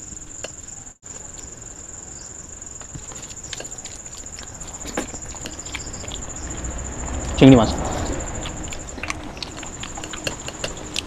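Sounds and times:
crickets chirring: 0:00.0 - 0:11.0
person eating: 0:02.8 - 0:06.7, 0:07.8 - 0:11.0
hand mixing food on steel plate: 0:08.1 - 0:11.0.

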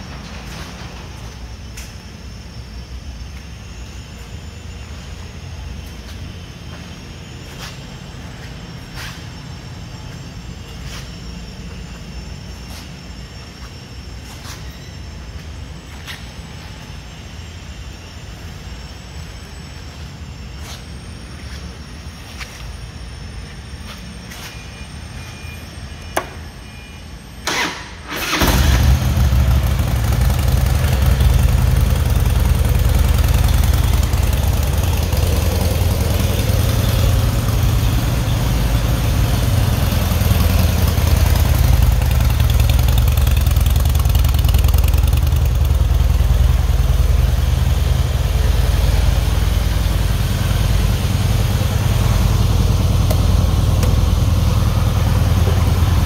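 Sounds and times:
motorcycle engine cranking: 0:27.5 - 0:30.8
motorcycle engine idling: 0:27.6 - 0:56.0.

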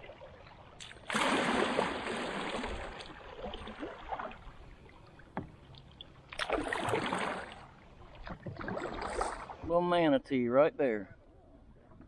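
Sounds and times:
paddle strokes swishing in water: 0:01.1 - 0:09.7.

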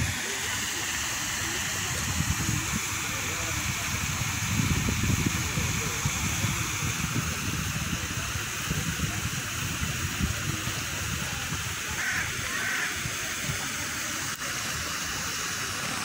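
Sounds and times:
fountain water rushing: 0:00.0 - 0:16.0
wind rumble on microphone: 0:01.8 - 0:11.9.

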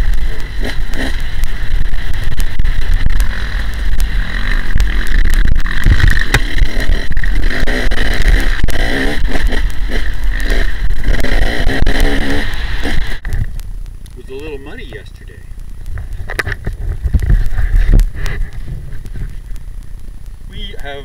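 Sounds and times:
dirt bike engine revving: 0:00.0 - 0:13.3
wind rumble on microphone: 0:00.0 - 0:13.8, 0:15.7 - 0:19.8.

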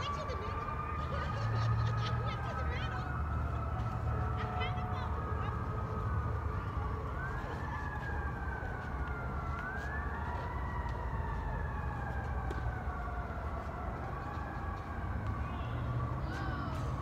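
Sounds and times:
siren wailing: 0:00.0 - 0:17.0.

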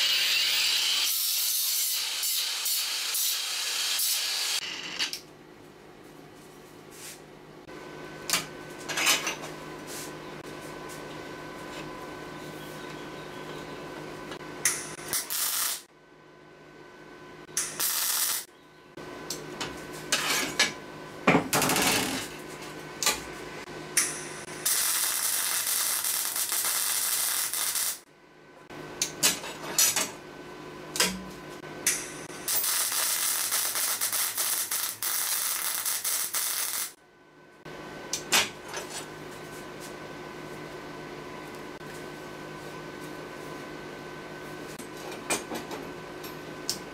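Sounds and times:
welder crackling: 0:00.0 - 0:05.2, 0:14.6 - 0:15.9, 0:17.6 - 0:18.5, 0:24.0 - 0:28.0, 0:31.8 - 0:37.0.

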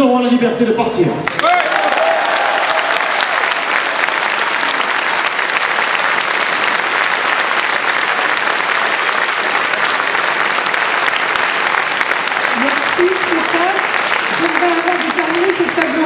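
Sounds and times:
large audience applauding: 0:01.2 - 0:16.0.

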